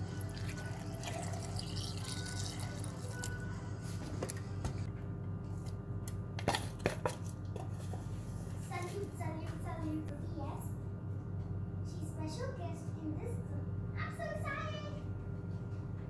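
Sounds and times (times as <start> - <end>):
milk pouring into a jar: 0.0 - 3.4
quiet background music: 0.0 - 5.8.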